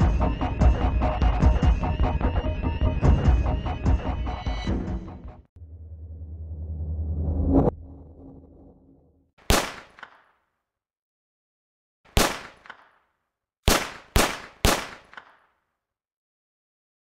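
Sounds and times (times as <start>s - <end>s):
low rumbling drone: 5.6s - 9.3s.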